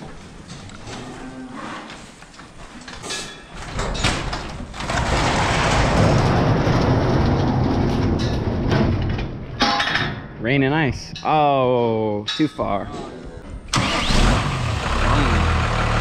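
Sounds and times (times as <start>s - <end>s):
metal door rattling and rumbling: 3.6s - 10.4s.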